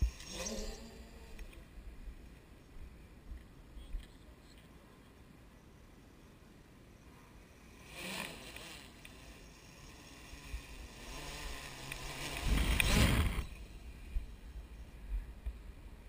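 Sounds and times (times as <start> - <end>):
drone propellers buzzing: 0.0 - 1.8, 7.5 - 15.4.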